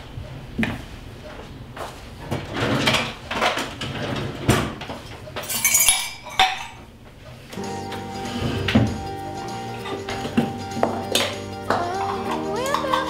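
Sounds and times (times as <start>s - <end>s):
crockery and cups clinking: 5.4s - 7.0s, 7.9s - 13.0s
music: 7.6s - 13.0s.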